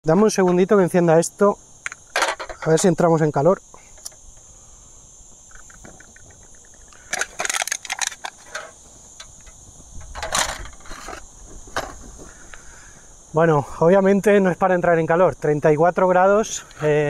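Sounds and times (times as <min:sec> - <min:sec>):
insects chirring: 0:00.0 - 0:17.0
sharp clicks and scraping: 0:05.5 - 0:12.0.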